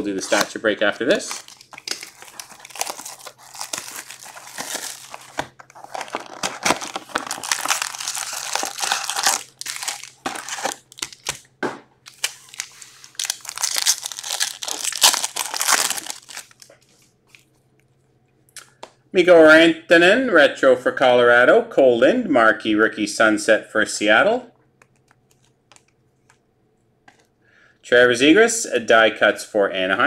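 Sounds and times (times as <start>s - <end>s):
plastic wrappers crinkling and tearing: 0.2s - 11.4s, 12.1s - 17.5s.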